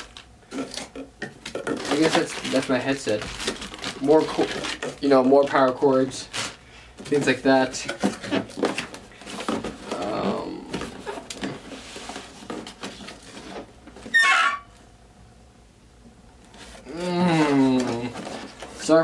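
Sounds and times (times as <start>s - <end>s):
cardboard packaging rustling: 0.0s - 14.6s, 16.5s - 19.0s
high grating squeak: 14.1s - 14.7s.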